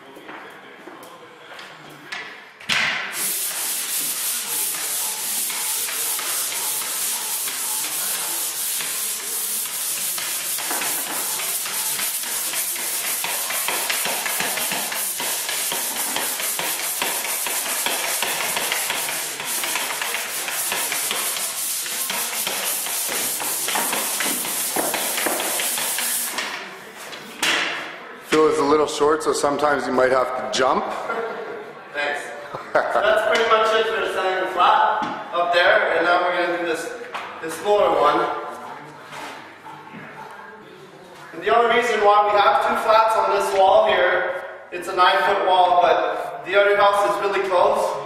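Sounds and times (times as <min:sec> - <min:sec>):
pole sander rasping on drywall: 0:03.2 - 0:26.4.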